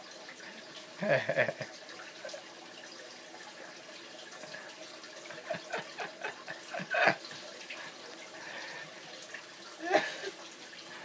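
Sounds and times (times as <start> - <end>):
man laughing: 1.0 - 1.7, 5.4 - 7.2, 9.8 - 10.3.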